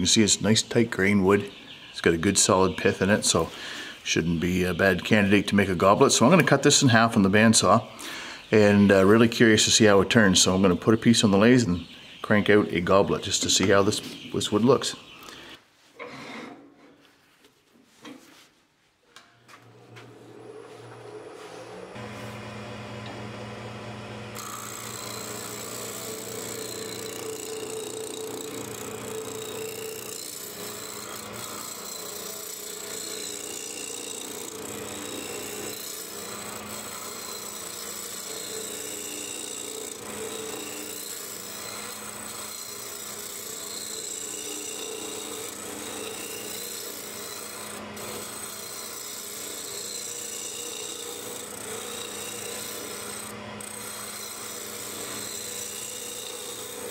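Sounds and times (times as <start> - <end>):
lathe motor hum: 19.6 - 56.9
turning tool cutting wood hiss: 24.3 - 56.9.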